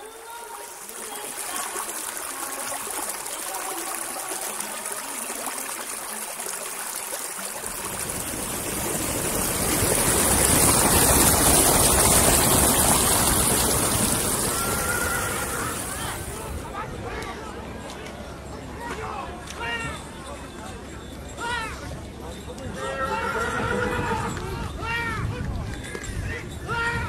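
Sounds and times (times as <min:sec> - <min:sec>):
water rushing over rocks: 0:00.0 - 0:16.7
waterfall rushing: 0:00.0 - 0:16.7.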